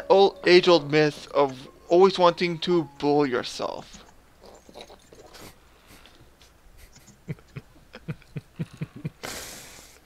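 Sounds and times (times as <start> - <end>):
person chuckling quietly: 6.8 - 9.8.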